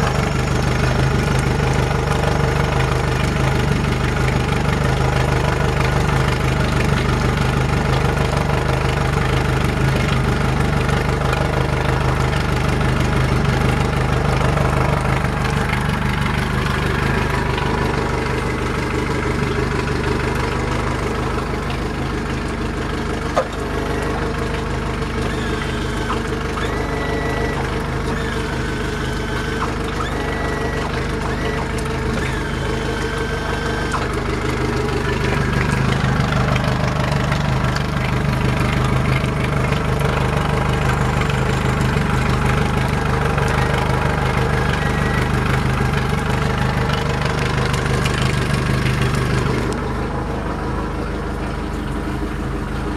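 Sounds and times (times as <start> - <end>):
outboard motor idling: 0.0 - 52.9.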